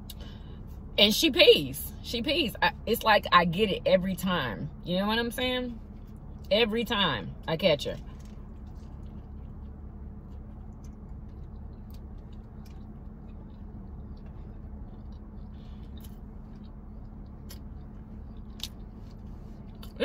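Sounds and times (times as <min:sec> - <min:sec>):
steady low hum: 0:00.0 - 0:20.0
person chewing food: 0:08.0 - 0:20.0.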